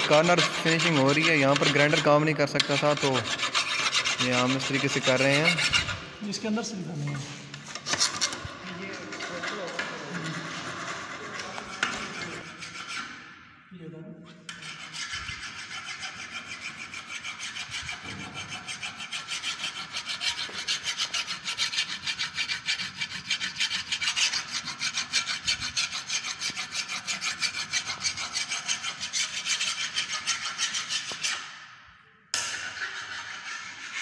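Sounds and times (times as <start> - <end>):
hand file rasping on metal: 0.0 - 6.2, 7.1 - 13.4, 14.5 - 31.6, 32.4 - 34.0.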